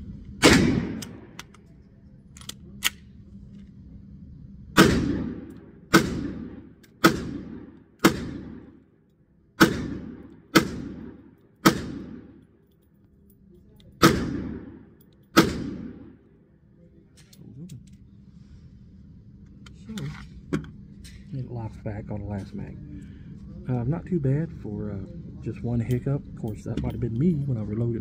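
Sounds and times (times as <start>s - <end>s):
pistol shots echoing indoors: 0.4s - 1.4s, 4.8s - 8.8s, 9.6s - 12.5s, 14.0s - 16.3s
light clicks of pistol handling: 1.0s - 3.8s, 12.4s - 14.0s.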